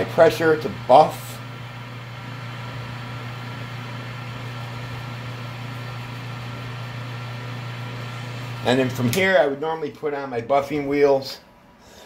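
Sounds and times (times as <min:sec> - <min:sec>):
lathe motor humming: 0:00.0 - 0:09.3.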